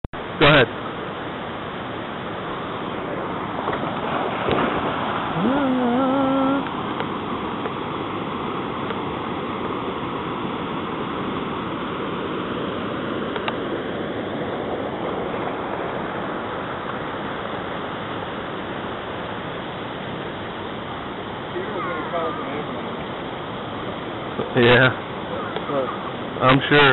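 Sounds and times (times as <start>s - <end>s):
water rushing over rocks: 0.2s - 26.9s
rising call: 5.2s - 6.7s.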